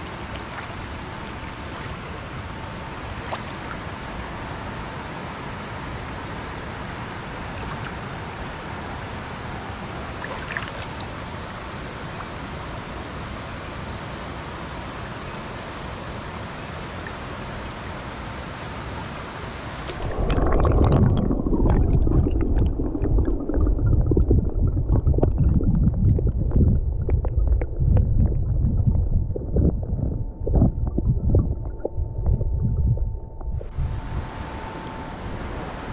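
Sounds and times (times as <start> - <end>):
muffled underwater rumble: 19.8 - 35.9.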